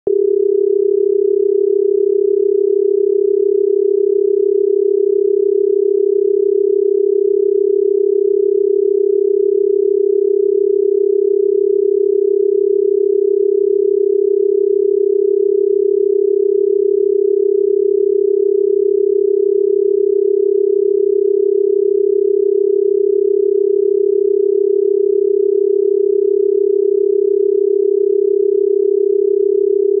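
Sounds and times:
telephone dial tone: 0.1s - 30.0s.

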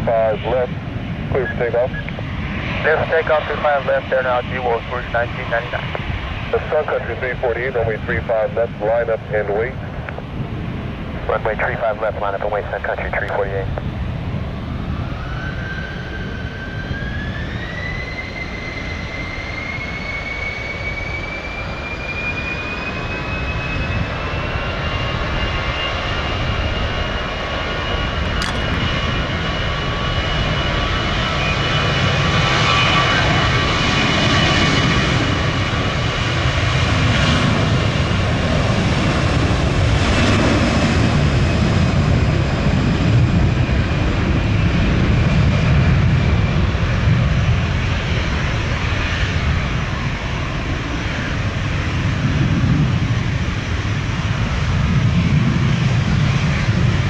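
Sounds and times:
jet engine whine: 0.0s - 57.0s.

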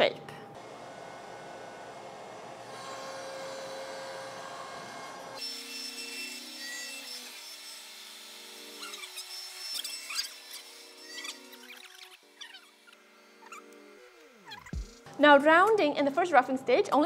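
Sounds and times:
router spindle whining: 0.6s - 15.1s
crackles of wood cutting: 2.4s - 15.1s.

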